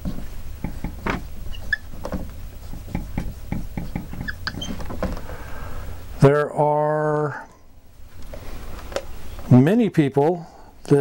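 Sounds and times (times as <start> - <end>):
marker squeaking on whiteboard: 0.6 - 5.1.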